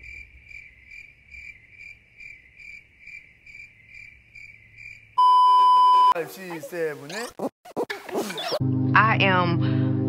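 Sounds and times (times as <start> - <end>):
cricket chirping: 0.0 - 6.2.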